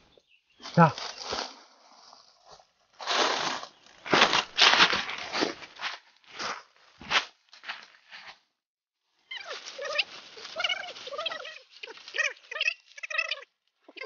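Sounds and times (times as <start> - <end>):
dry leaves crunching underfoot: 0.6 - 8.3, 9.3 - 12.6.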